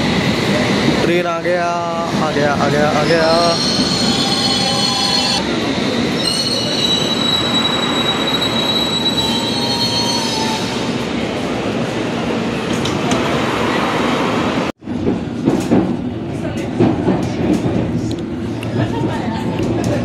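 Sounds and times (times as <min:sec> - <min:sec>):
rumble of train carriages: 0:00.0 - 0:20.0
train wheels and brakes squealing: 0:03.1 - 0:05.4, 0:06.1 - 0:10.9.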